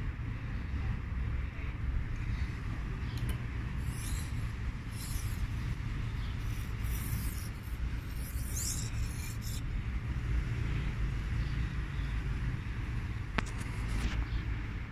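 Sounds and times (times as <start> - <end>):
metal-on-metal scratchy rubbing: 3.7 - 9.6.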